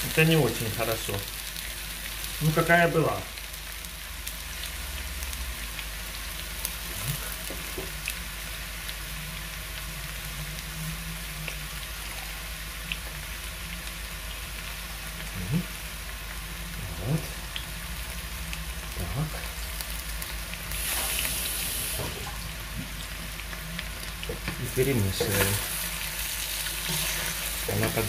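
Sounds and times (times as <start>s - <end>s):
food sizzling in a pan: 0.0s - 28.0s.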